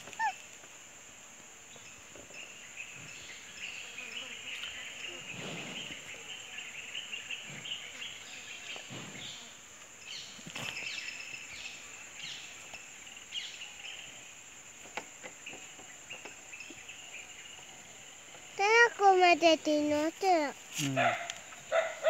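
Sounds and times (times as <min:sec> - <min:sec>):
birds chirping: 0:00.0 - 0:00.4
insect drone: 0:00.0 - 0:22.0.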